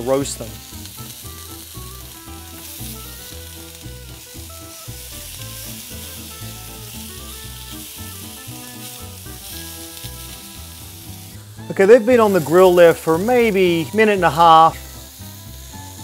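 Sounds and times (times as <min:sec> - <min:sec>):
background music with bass line: 0:00.0 - 0:16.0
vegetables sizzling in grill pan: 0:00.0 - 0:16.0.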